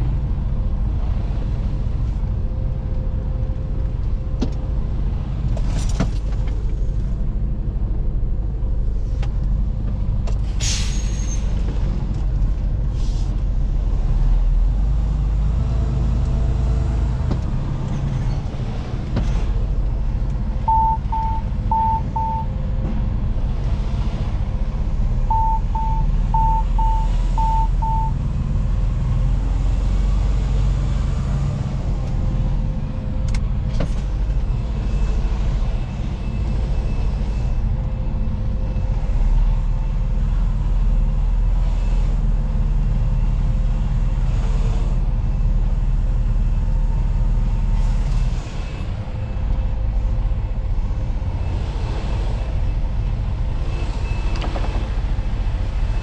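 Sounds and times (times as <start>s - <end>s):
air brake hisses: 10.6s - 11.4s
diesel truck engine running: 11.7s - 56.0s
electronic warning beeps: 20.7s - 22.5s, 25.3s - 28.2s.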